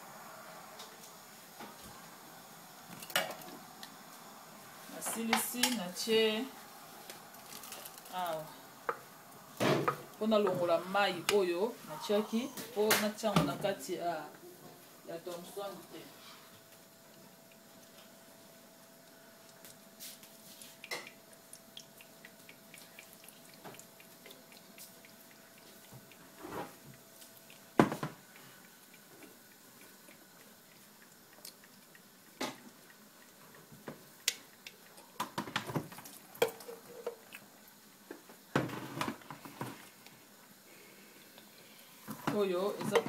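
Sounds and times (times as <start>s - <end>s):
paste dripping through strainer: 19.5s - 35.0s.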